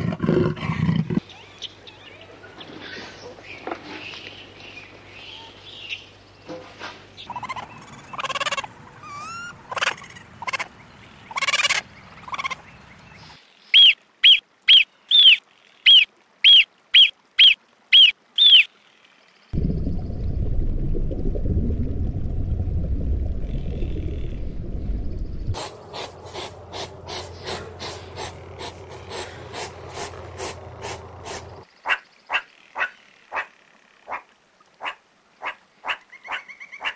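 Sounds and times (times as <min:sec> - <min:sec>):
varied animal calls: 0:07.3 - 0:10.7
low rushing noise: 0:19.6 - 0:31.6.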